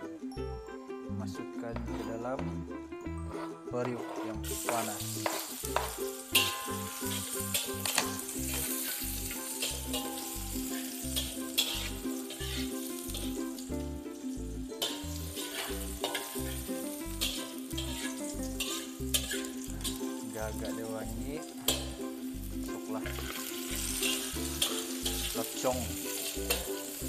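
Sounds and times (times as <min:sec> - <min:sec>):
background music with a beat: 0:00.0 - 0:27.0
metal spatula scraping a wok: 0:03.3 - 0:13.6, 0:14.8 - 0:20.2, 0:23.0 - 0:25.4, 0:26.0 - 0:27.0
garlic and onion sizzling in oil: 0:03.3 - 0:27.0.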